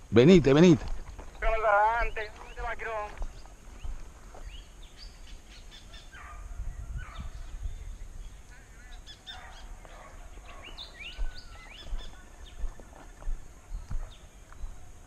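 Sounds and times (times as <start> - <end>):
birds chirping and whistling: 1.2 - 12.8.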